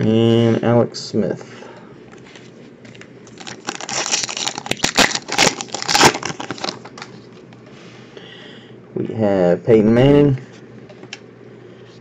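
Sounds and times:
foil wrapper tearing and crinkling: 3.3s - 7.1s.

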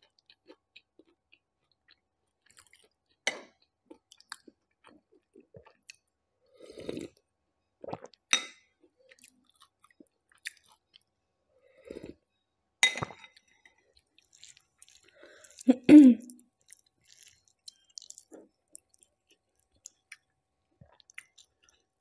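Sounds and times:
wet chewing: 14.0s - 15.7s, 16.6s - 22.0s.

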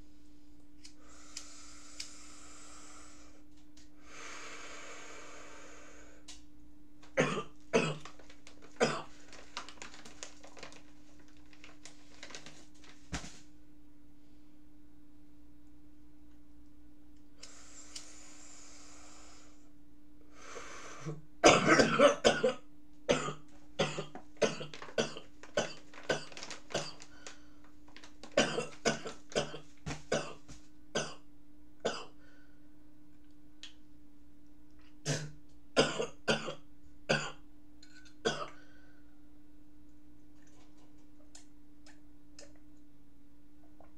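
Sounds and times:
man coughing: 21.4s - 25.8s.

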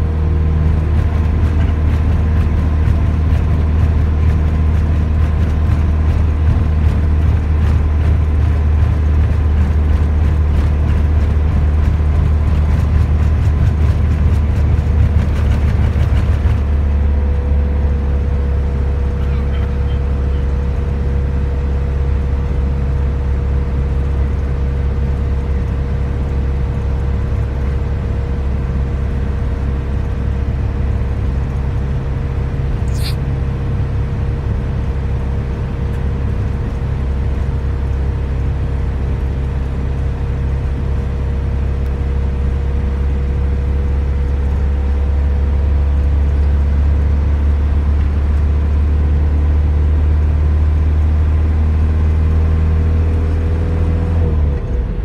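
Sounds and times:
car engine and tyre rumble: 0.0s - 55.0s
sharp click: 32.9s - 33.2s.

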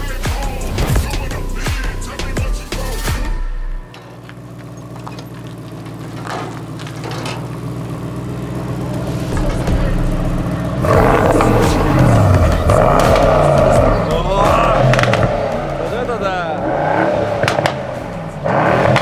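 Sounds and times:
car engine revving: 3.9s - 19.0s.

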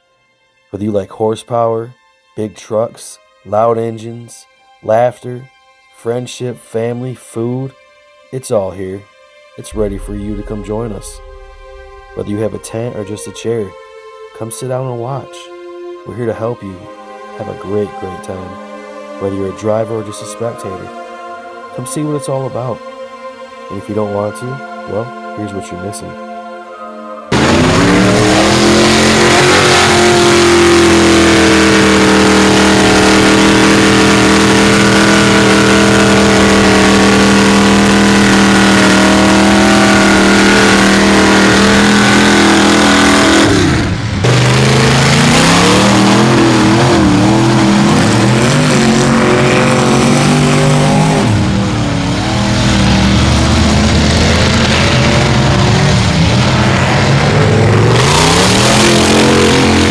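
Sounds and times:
truck engine revving: 9.7s - 13.6s, 27.3s - 59.9s
tires spinning in mud: 27.4s - 59.9s.

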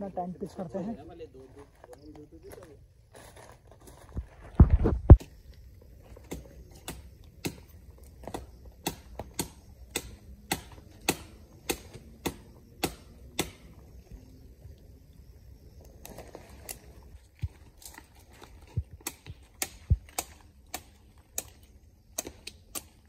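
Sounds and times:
blade chopping tree branches: 6.2s - 13.7s, 18.8s - 23.0s.

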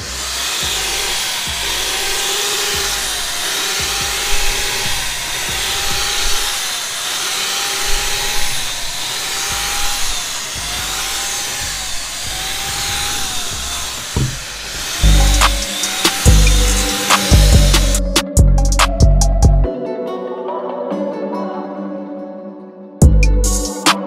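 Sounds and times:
electric paint sprayer motor buzzing: 0.0s - 18.2s.

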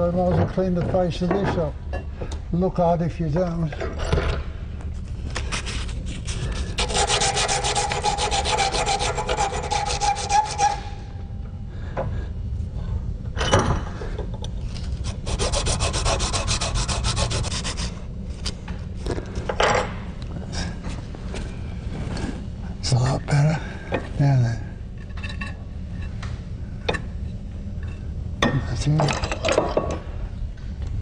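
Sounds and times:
metal rasping on a file: 5.5s - 11.0s, 15.0s - 18.0s.

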